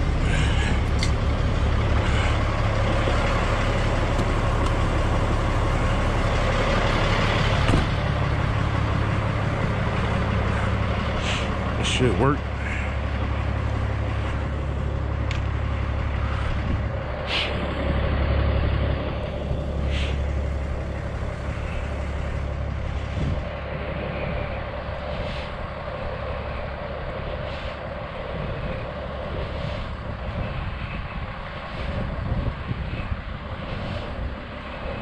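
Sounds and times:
diesel truck engines idling: 0.0s - 35.0s
steady hum: 0.0s - 35.0s
short hisses: 17.2s - 17.6s.

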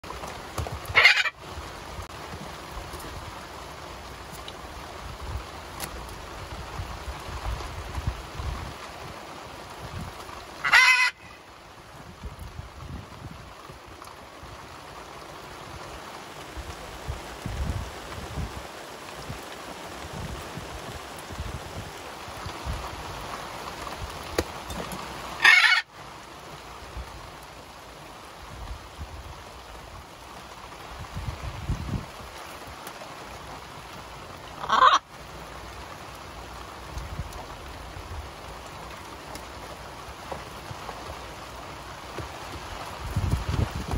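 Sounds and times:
rain falling on boat: 0.0s - 43.9s
macaw squawk: 0.9s - 1.4s, 10.6s - 11.4s, 25.4s - 25.9s, 34.6s - 35.1s.

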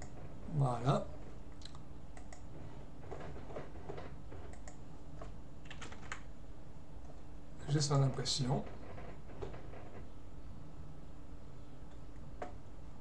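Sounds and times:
low background hum: 0.0s - 13.0s
typing on computer keyboard: 5.6s - 6.3s.

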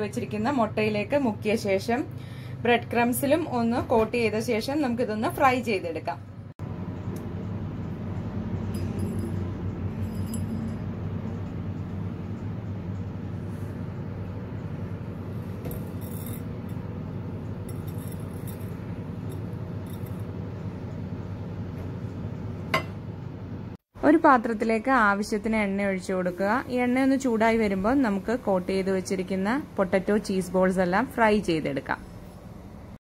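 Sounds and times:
low hum: 6.2s - 23.8s
faint clinks of glass bowl: 8.6s - 10.9s.

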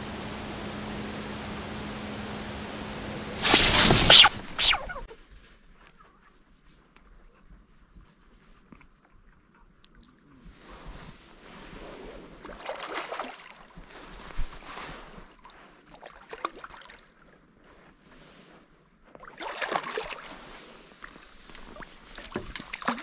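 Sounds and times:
water splashing and sloshing: 11.0s - 23.0s
sharp water slaps: 12.6s - 13.6s.

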